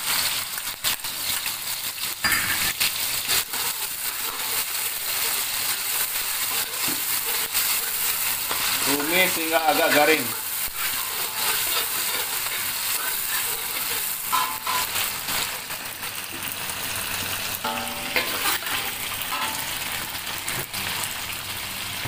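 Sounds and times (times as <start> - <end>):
spices sizzling in hot oil: 0.0 - 22.0
metal ladle scraping a wok: 2.2 - 15.6, 17.6 - 19.8.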